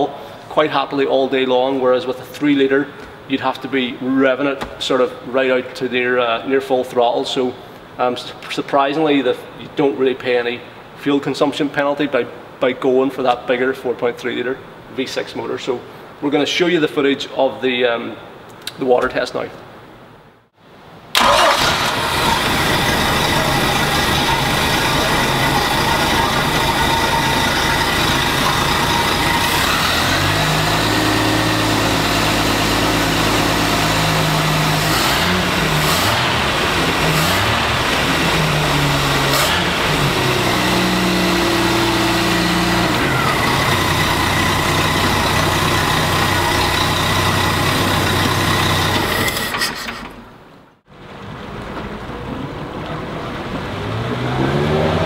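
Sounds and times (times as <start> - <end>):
boat engine running and revving: 22.0 - 49.2, 53.5 - 55.0.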